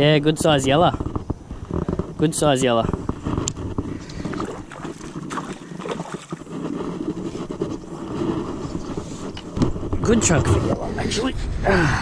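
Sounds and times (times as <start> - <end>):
fish splashing at surface: 4.1 - 6.5.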